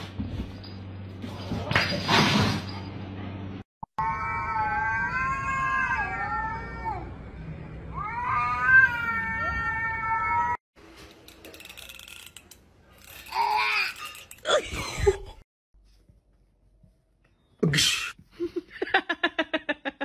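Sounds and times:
cat yowling: 4.0s - 7.1s, 7.9s - 10.6s.

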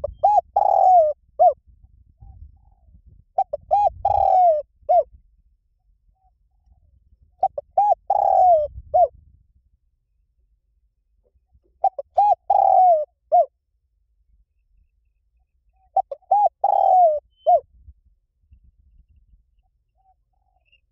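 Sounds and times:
dove cooing: 0.0s - 1.6s, 2.2s - 5.1s, 7.4s - 9.1s, 11.6s - 13.5s, 15.8s - 17.6s.

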